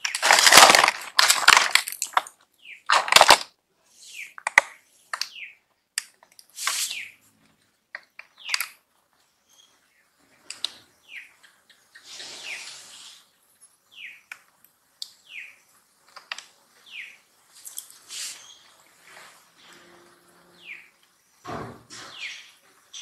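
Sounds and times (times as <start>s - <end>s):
bird chirping: 2.5s - 2.9s, 3.8s - 23.0s
brief hiss: 6.6s - 7.1s, 12.0s - 13.3s.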